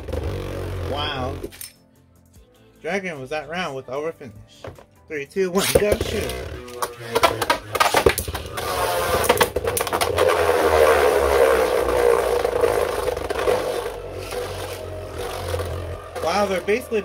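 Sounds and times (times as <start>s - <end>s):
spinning tops whirring scrape: 5.7s - 17.0s.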